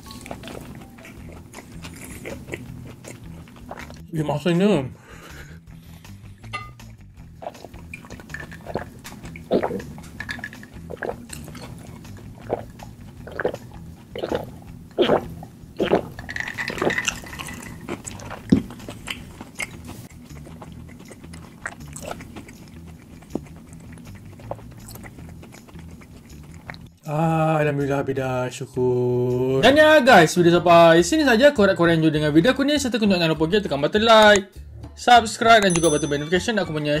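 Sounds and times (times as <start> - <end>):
person gulping a drink: 7.4 - 26.9.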